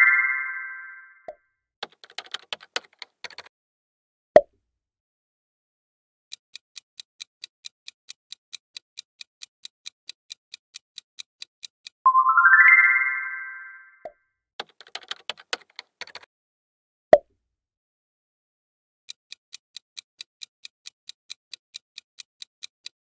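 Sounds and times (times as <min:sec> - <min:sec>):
rising chime: 0:00.0 - 0:01.3, 0:12.1 - 0:14.0
keyboard typing clicks: 0:01.8 - 0:03.5, 0:14.6 - 0:16.3
timer ticking: 0:06.3 - 0:12.3, 0:19.1 - 0:23.0.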